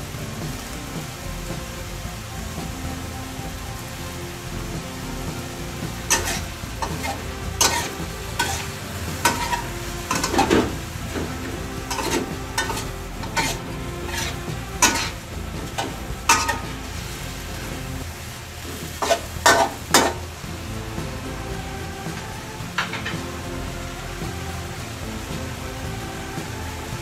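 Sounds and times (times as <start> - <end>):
food sizzling: 0.0 - 27.0
metal spatula scraping a wok: 6.0 - 17.2, 18.6 - 20.2.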